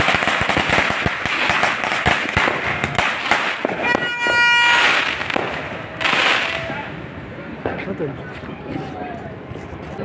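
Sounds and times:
firecrackers popping: 0.0 - 7.0
firework crackling: 0.0 - 8.2.

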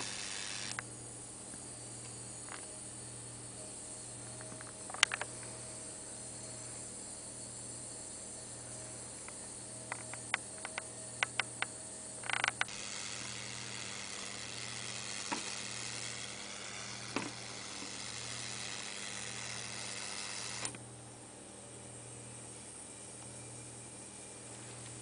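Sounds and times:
sharp electric clicks: 0.0 - 0.9, 4.3 - 5.6, 9.2 - 20.8
tesla coil high hiss: 0.0 - 0.9
faint steady tones: 0.0 - 25.0.

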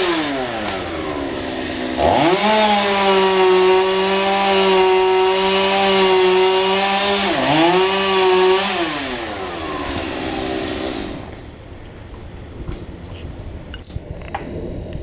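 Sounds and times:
chainsaw at full throttle: 0.0 - 11.3.

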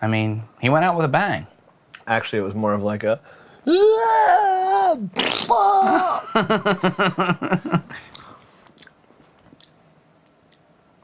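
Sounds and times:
man making mouth sound effect: 4.8 - 5.8
sputtering raspberry: 5.2 - 5.6
crackers being chewed: 8.1 - 10.6.

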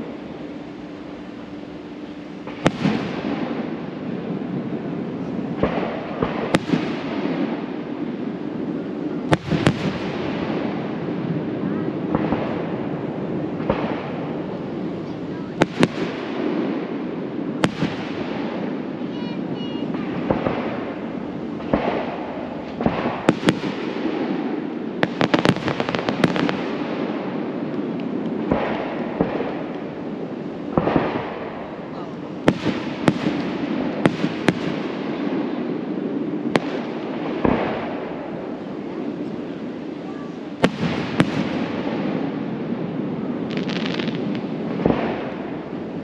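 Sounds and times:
people talking: 11.5 - 12.1, 14.5 - 15.7, 19.0 - 20.3, 31.8 - 32.4, 38.8 - 40.6.

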